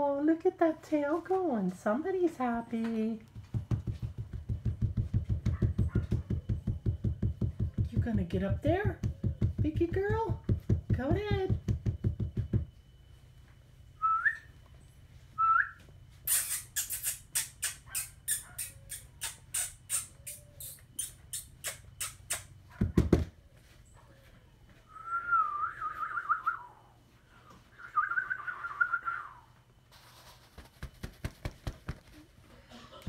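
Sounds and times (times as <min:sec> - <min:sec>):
puppy whining: 0:16.3 - 0:22.5.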